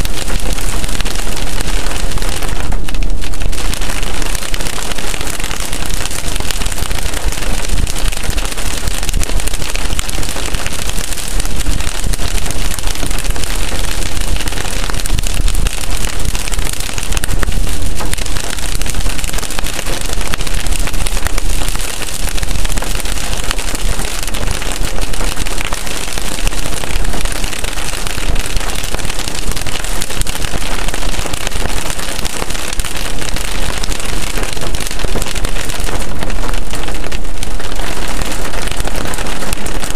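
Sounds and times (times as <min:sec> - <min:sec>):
rain pattering on car: 0:00.0 - 0:39.9.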